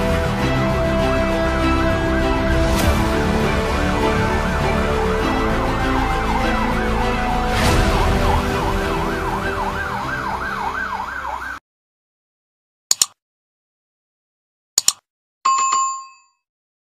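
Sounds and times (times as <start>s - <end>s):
low rumble: 0.0s - 10.6s
emergency siren yelping: 0.0s - 11.6s.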